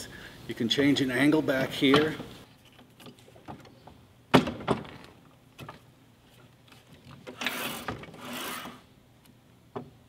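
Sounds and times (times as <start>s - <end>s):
metal sliding on metal: 7.3s - 8.9s.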